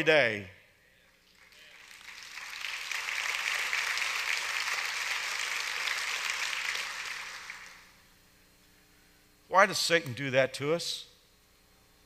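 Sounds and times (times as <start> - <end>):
congregation applauding: 1.2 - 8.0.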